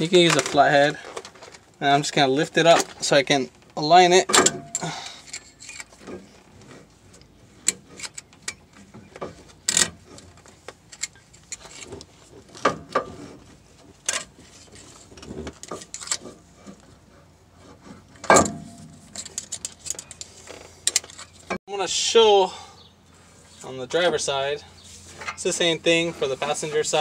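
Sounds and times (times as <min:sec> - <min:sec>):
screwdriver clicking and scraping metal: 0:18.9 - 0:21.4.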